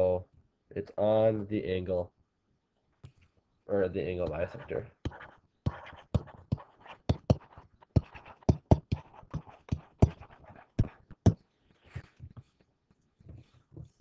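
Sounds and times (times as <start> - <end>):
stylus tapping and scratching: 4.2 - 12.6.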